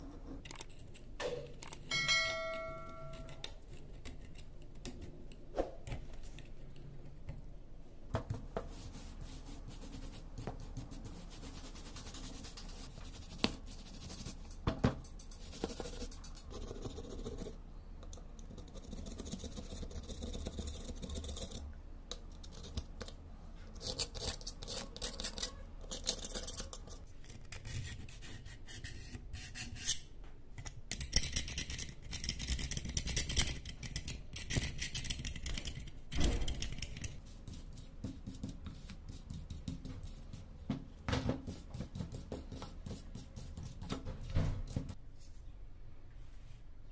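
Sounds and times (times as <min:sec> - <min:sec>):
metal scraper scratching rust: 0:23.7 - 0:27.1.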